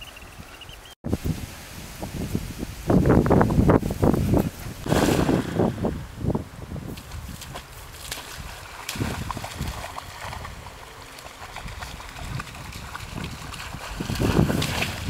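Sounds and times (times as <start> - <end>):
wind gusts on microphone: 0.2 - 15.0
water splashing from swimming dog: 6.9 - 15.0.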